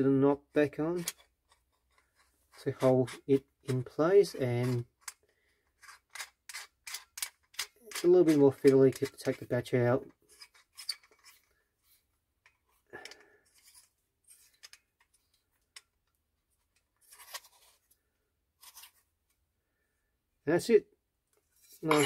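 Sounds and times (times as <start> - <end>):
metal hilt clicks and scrapes: 0.9 - 9.5, 10.1 - 18.0.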